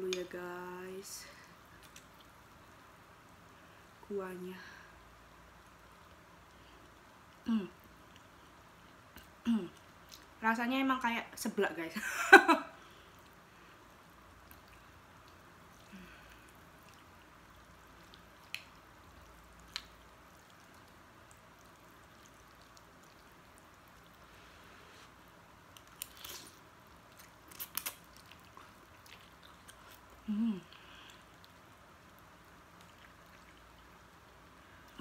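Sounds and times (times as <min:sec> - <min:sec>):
person humming: 0:07.5 - 0:07.8, 0:30.2 - 0:30.8.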